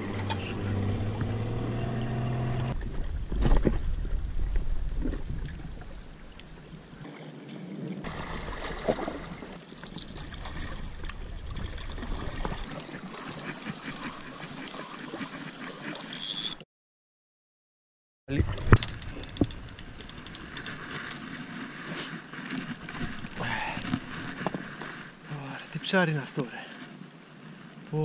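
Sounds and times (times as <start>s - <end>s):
small waves lapping on rocks: 5.2s - 15.2s
fishing rod clicks and knocks: 18.6s - 21.3s.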